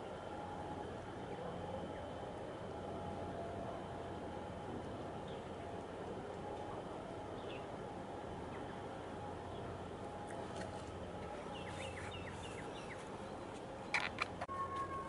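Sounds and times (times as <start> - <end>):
bird chirping: 11.4 - 14.4.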